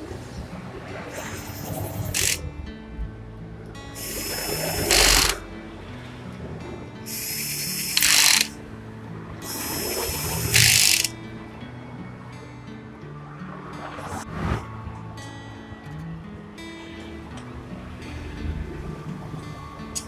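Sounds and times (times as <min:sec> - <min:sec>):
cordless power driver running: 0:02.1 - 0:02.4, 0:04.0 - 0:05.4, 0:07.1 - 0:08.5, 0:09.4 - 0:11.1.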